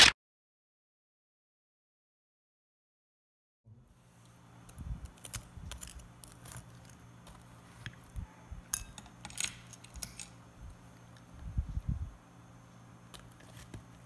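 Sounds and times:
fork clinking on ceramic plate: 8.7 - 10.2.

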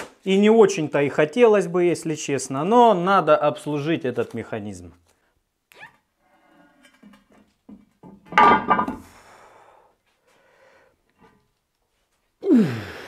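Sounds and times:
grunt of effort: 12.4 - 13.0.

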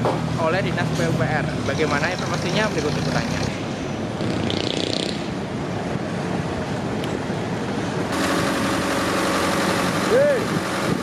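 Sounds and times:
diesel engines droning: 0.0 - 11.0
heavy machinery engine rumble: 5.2 - 11.0.

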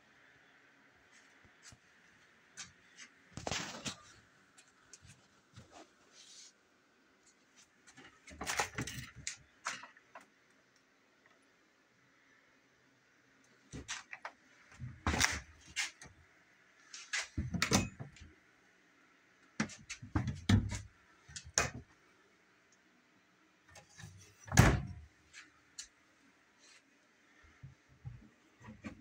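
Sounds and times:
cabinet doors knocking and clunking: 20.1 - 20.8, 24.5 - 25.0.

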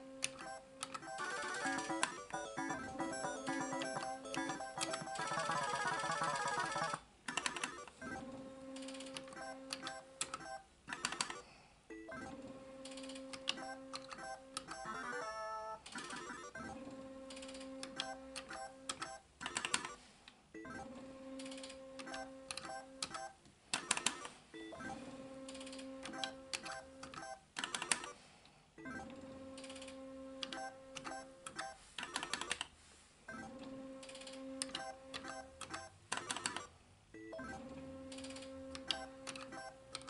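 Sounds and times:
sharp clicks and beeps: 0.2 - 8.3, 9.1 - 12.5, 30.4 - 32.6, 34.6 - 40.0.

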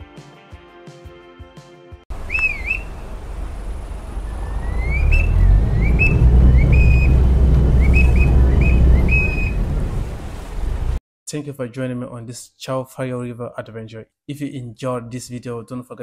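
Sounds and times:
boat engine rumbling: 2.1 - 11.0
whistle toots and chirps: 2.2 - 3.1, 4.2 - 9.7.

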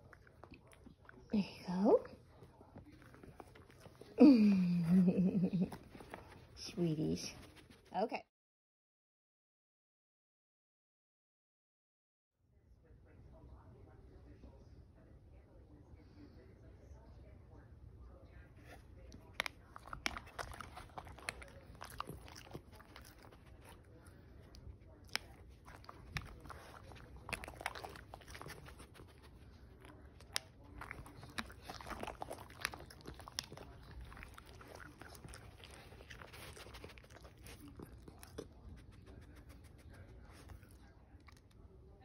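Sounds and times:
dogs crunching treats: 2.3 - 6.6, 19.0 - 41.6.

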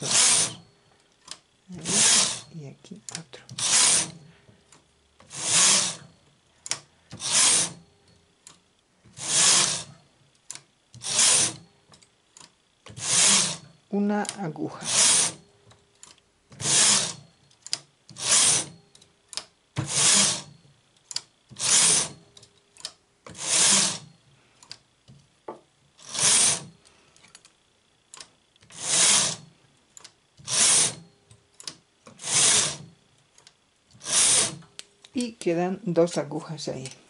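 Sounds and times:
knitting machine carriage rasping: 0.0 - 4.3, 5.2 - 6.1, 6.7 - 7.9, 9.1 - 10.0, 11.0 - 24.1, 26.0 - 26.8, 28.2 - 29.6, 30.4 - 33.0, 34.0 - 34.8.

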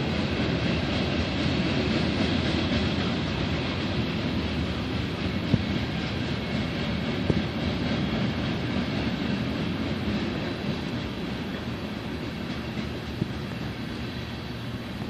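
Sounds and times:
train cars clanking: 0.0 - 15.0
train wheels rumbling on rail: 0.0 - 15.0.

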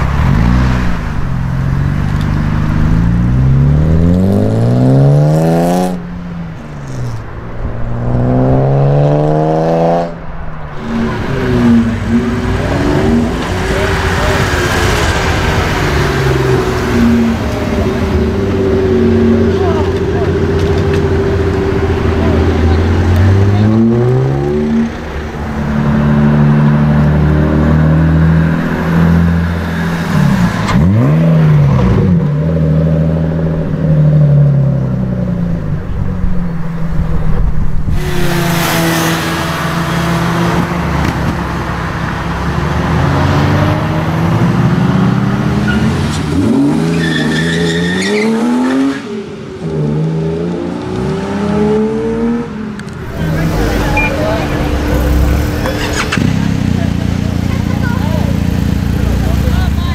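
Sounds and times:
car engines revving and accelerating: 0.0 - 59.9.

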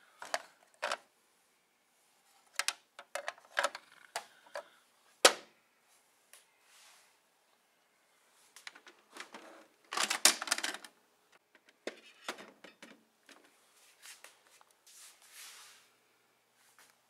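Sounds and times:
plastic toys clicking: 9.9 - 10.9.

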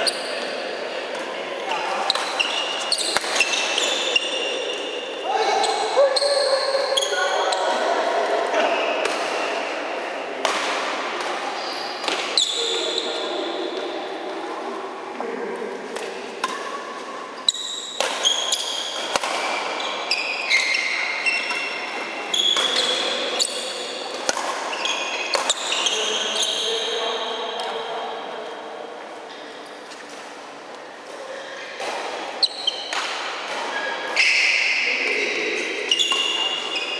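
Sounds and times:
shoes squeaking on court: 2.0 - 8.0, 17.4 - 23.9, 24.7 - 27.7, 32.4 - 36.9
racket hitting shuttlecock: 2.1 - 4.3, 9.0 - 9.5, 10.4 - 12.6, 16.0 - 19.8, 20.5 - 25.9, 31.8 - 34.4, 35.9 - 36.6.

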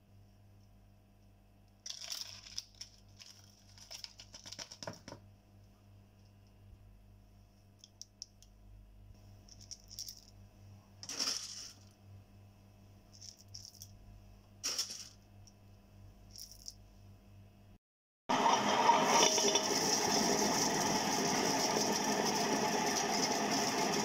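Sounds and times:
spices rattling in steel jar: 1.8 - 4.9
faint steady hum: 5.2 - 17.8.

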